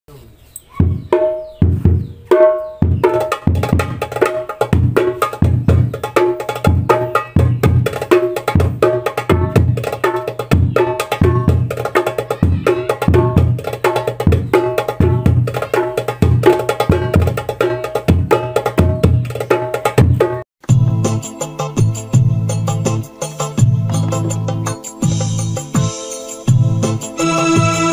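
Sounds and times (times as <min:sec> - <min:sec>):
frame drum: 0:00.8 - 0:20.4
hand drum fast rhythm: 0:00.8 - 0:20.4.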